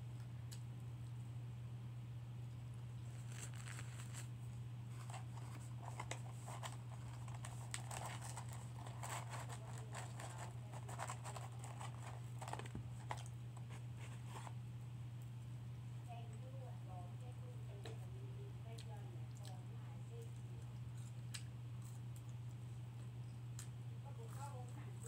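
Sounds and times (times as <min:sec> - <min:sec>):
paper carton crinkling: 0:03.1 - 0:04.3, 0:04.9 - 0:14.6
chewing: 0:05.1 - 0:13.4, 0:18.7 - 0:19.6.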